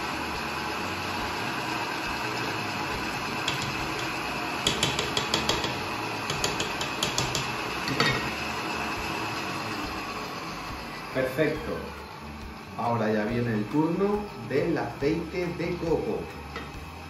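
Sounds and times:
stand mixer running: 0:00.0 - 0:17.0
knock: 0:04.7 - 0:07.5.

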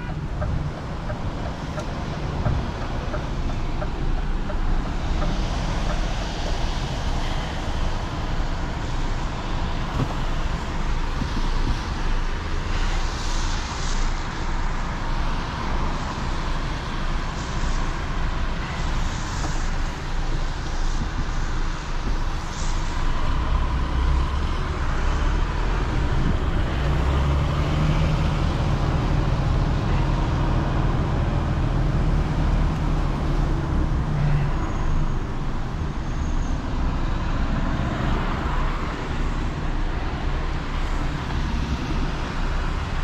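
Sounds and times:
road and tyre noise: 0:00.0 - 0:43.0
truck diesel engine running: 0:00.0 - 0:43.0.

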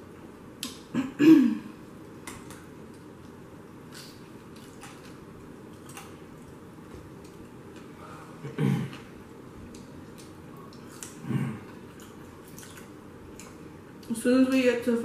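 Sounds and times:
person clearing throat: 0:01.0 - 0:01.7, 0:08.4 - 0:09.0.

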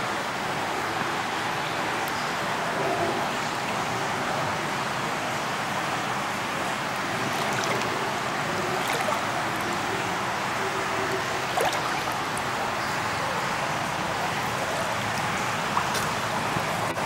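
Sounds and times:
pool water splashing and lapping: 0:00.0 - 0:17.0
small splashes: 0:06.7 - 0:17.0.

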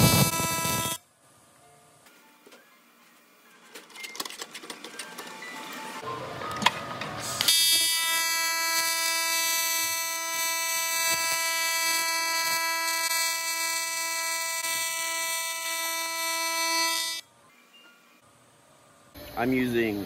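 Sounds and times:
high-pitched electric buzz: 0:00.0 - 0:01.0, 0:07.2 - 0:17.3.

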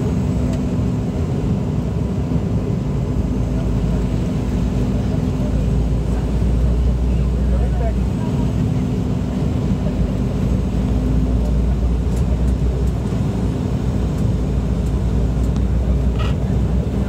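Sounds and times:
jet engines rumbling in cabin: 0:00.0 - 0:17.0.

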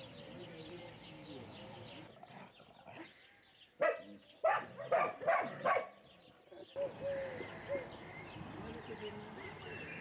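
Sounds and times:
puppies barking: 0:03.8 - 0:06.0.

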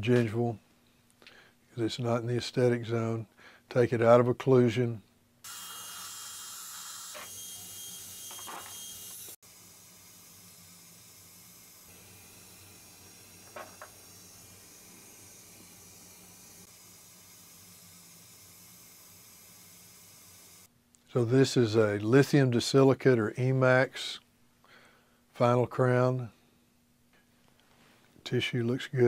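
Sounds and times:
dental drill whining: 0:05.4 - 0:20.7.

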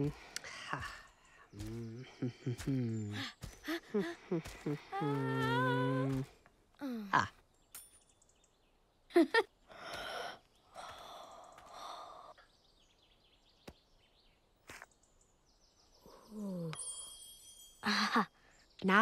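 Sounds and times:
sighs and gasps: 0:09.7 - 0:12.4.

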